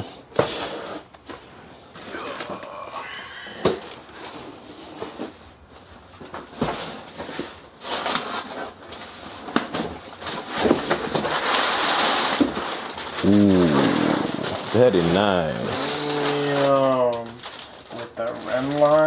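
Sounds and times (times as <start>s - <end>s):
packing paper rustling: 3.8s - 19.0s.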